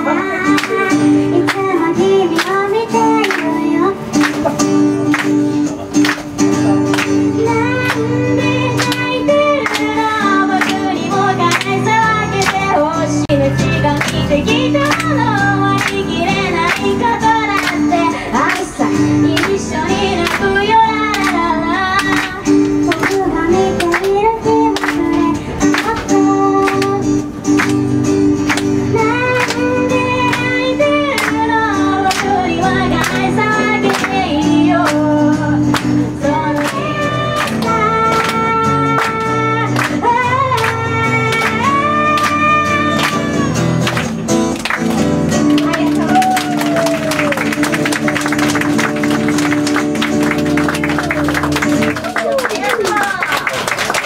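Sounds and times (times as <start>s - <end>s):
woman singing: 0.0s - 5.3s, 6.9s - 27.7s, 28.5s - 43.7s
acoustic guitar strumming: 0.0s - 52.0s.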